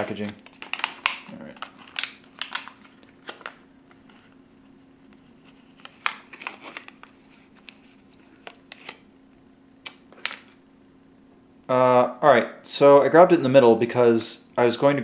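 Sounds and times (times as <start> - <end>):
foil pouch crinkling: 0.0 - 4.3, 5.6 - 9.0.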